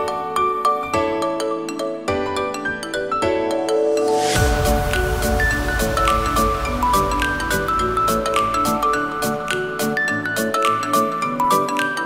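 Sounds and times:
short swoosh: 0:04.1 - 0:09.6
bass and drums: 0:04.4 - 0:09.9.

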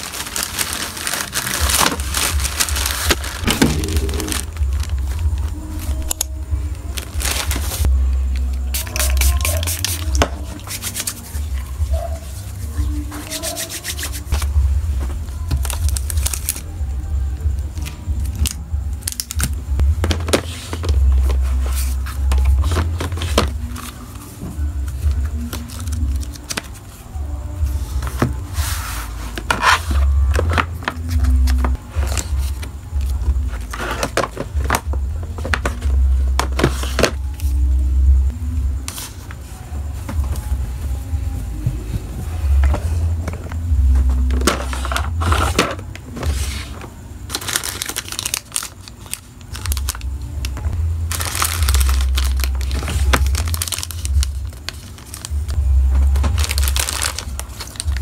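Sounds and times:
low hum: 0:03.4 - 0:07.1
paper cards rustling and scraping: 0:20.0 - 0:24.3, 0:28.0 - 0:32.7, 0:33.5 - 0:34.8.

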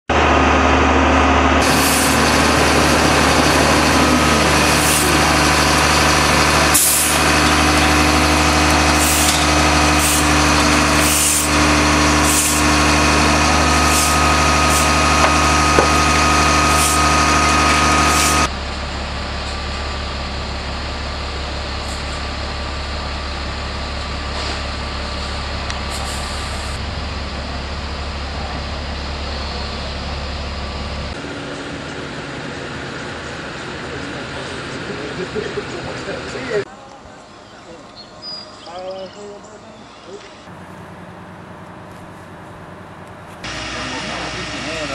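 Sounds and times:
truck engine running: 0:00.1 - 0:36.7, 0:40.4 - 0:44.9
short air hisses: 0:01.6 - 0:02.2, 0:04.7 - 0:05.2, 0:06.8 - 0:07.2, 0:09.0 - 0:09.4, 0:10.0 - 0:10.4, 0:11.0 - 0:11.6, 0:12.2 - 0:12.7, 0:13.9 - 0:15.0, 0:25.9 - 0:26.8.

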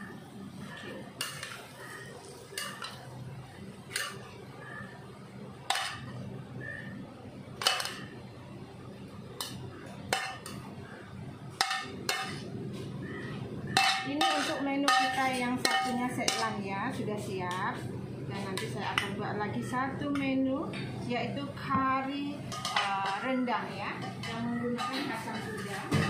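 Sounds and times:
metal ladle clinking on wok: 0:13.7 - 0:16.6.

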